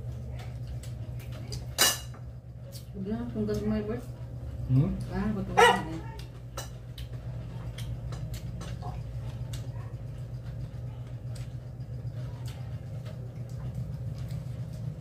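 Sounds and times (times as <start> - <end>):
steady low hum: 0.0 - 15.0
plates and spoon clinking: 1.7 - 2.3.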